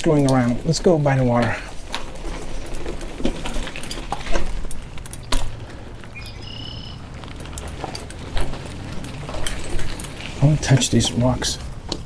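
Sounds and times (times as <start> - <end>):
knocks and rattles: 0.0 - 6.1
bicycle rolling over dirt trail: 0.0 - 12.0.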